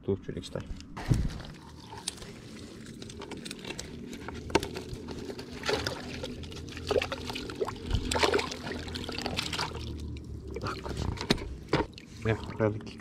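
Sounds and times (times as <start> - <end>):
water pouring and dripping: 1.1 - 13.0
sharp water splashes: 5.6 - 10.8.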